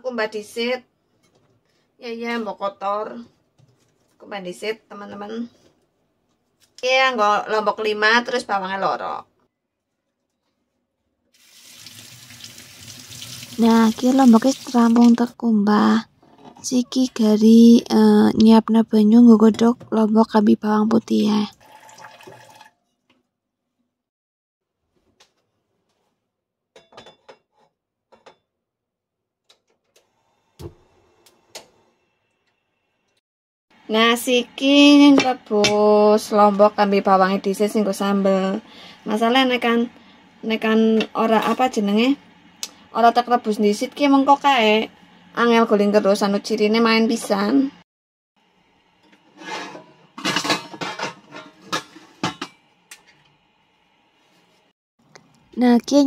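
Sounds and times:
frying pans clanking: 49.0s - 52.7s.

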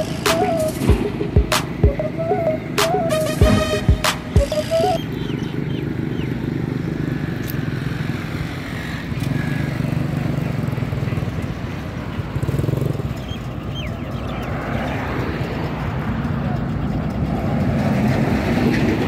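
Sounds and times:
small tractor engine rumbling: 4.2s - 19.0s.

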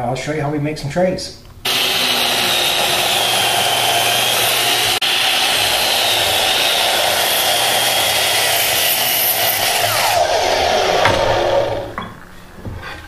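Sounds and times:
electric motor whine: 1.7s - 12.0s.

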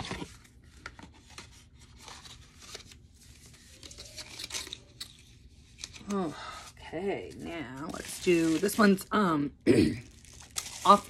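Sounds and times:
packaging rustling and crinkling: 0.0s - 6.1s, 7.3s - 9.1s, 10.0s - 11.0s.

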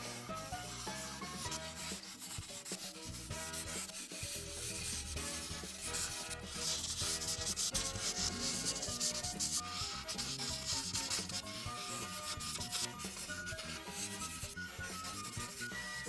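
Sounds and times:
faint background music: 0.0s - 16.0s
marker scratching on paper: 0.0s - 16.0s.

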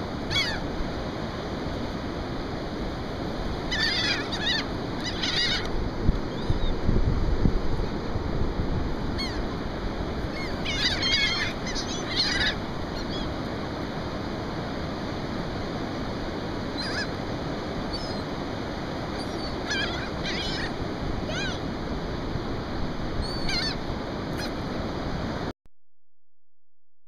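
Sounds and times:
wind: 0.0s - 25.5s
gulls calling: 0.1s - 0.8s, 3.3s - 6.9s, 8.9s - 14.7s, 16.3s - 24.8s.

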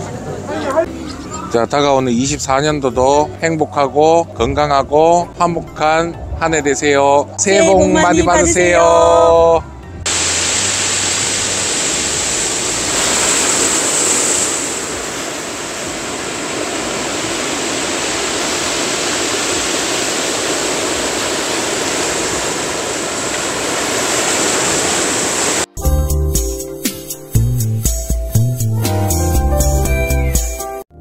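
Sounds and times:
surf washing over pebbly shore: 10.1s - 25.7s.

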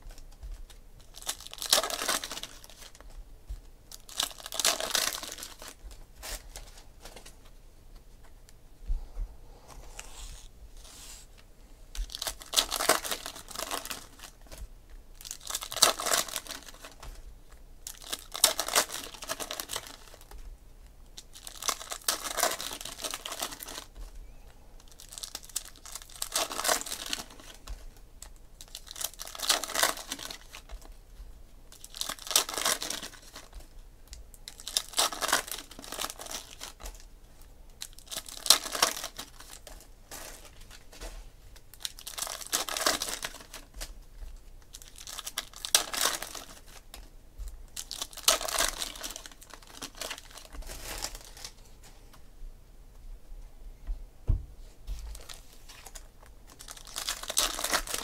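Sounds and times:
foil wrappers crinkling and tearing: 0.0s - 3.2s, 3.9s - 7.4s, 11.9s - 17.2s, 17.8s - 20.4s, 21.2s - 24.2s, 24.8s - 31.0s, 31.7s - 47.1s, 47.7s - 51.8s, 55.0s - 58.0s.

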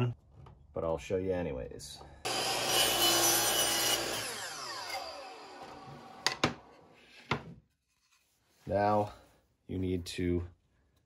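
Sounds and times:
miter saw cutting wood: 2.3s - 6.4s
saw blade spinning down: 2.3s - 6.4s.

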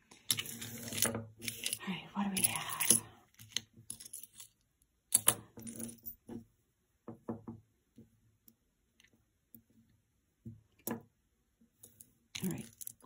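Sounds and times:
jewelry clinking: 0.1s - 6.3s, 11.8s - 13.0s.

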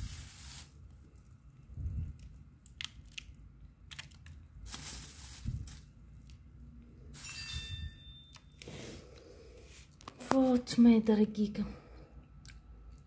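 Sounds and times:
candy crumbs crunching: 0.0s - 6.6s.

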